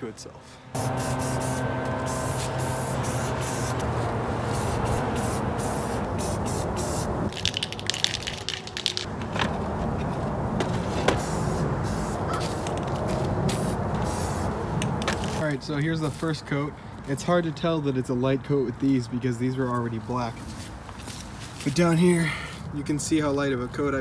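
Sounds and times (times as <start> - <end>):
aerosol spray can hissing: 0.8 - 7.1, 13.5 - 14.5.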